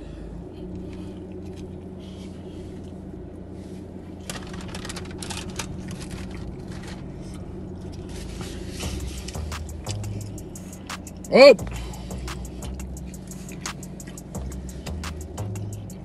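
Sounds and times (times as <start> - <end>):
car idling from inside: 0.0 - 16.0
rustling and clicks: 4.2 - 9.8.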